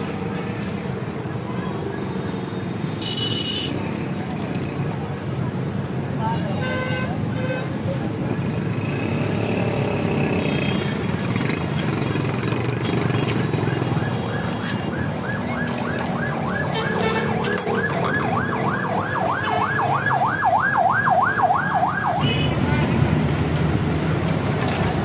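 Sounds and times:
road traffic noise: 0:00.0 - 0:25.0
emergency siren yelping: 0:13.5 - 0:22.2.

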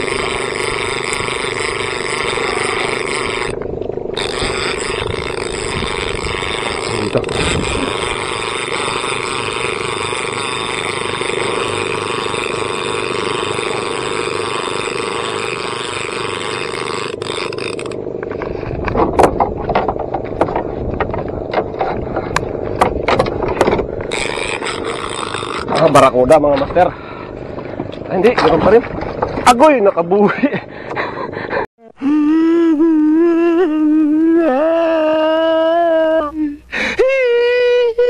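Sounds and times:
boat engine droning: 0:00.0 - 0:38.0
sharp irregular knocks and clicks: 0:17.1 - 0:26.0.

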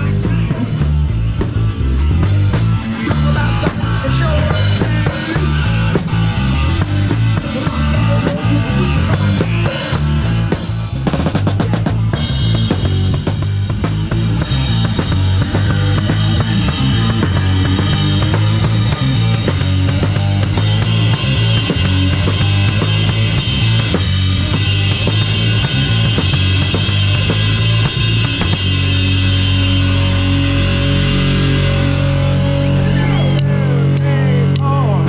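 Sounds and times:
bass drum: 0:00.0 - 0:35.0
bass line: 0:00.0 - 0:35.0
electric guitar: 0:00.0 - 0:35.0.

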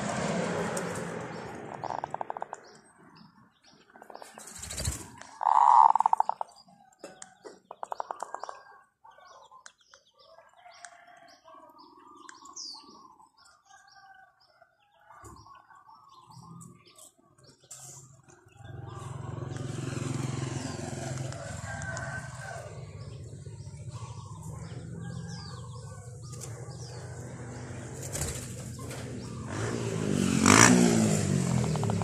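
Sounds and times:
small birds chirping: 0:00.7 - 0:32.0
bird warbling: 0:01.7 - 0:02.7, 0:04.0 - 0:06.7.

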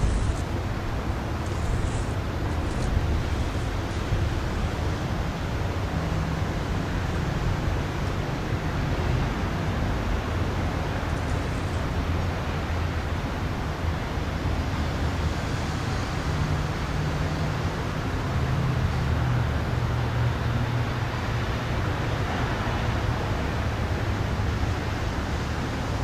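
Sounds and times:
even hiss: 0:00.0 - 0:04.8
road traffic hum: 0:00.0 - 0:26.0.

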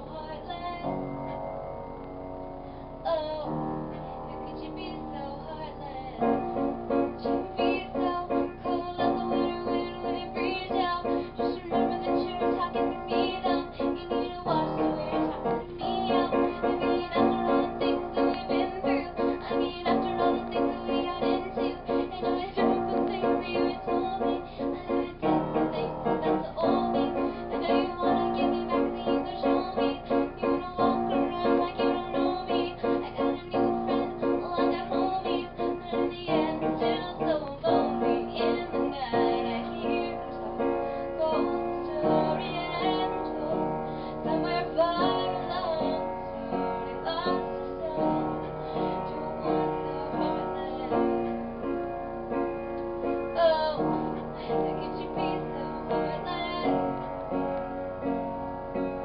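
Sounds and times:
piano: 0:00.0 - 0:59.0
person singing: 0:03.0 - 0:51.4, 0:53.0 - 0:57.2.

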